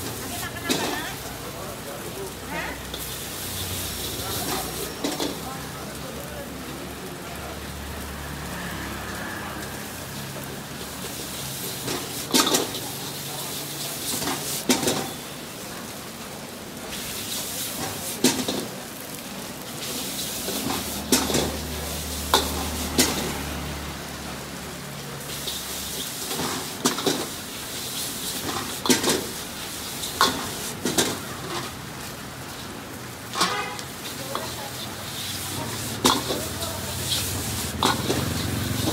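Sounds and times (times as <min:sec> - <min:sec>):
noodles sizzling in a wok: 0:00.0 - 0:38.9
ladle clanging against wok: 0:22.3 - 0:23.2, 0:33.3 - 0:38.9.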